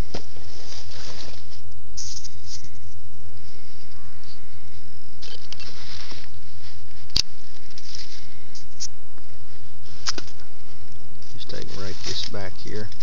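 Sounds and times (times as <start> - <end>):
dry leaf litter rustling: 0.0 - 2.6, 5.6 - 8.5, 9.8 - 13.0.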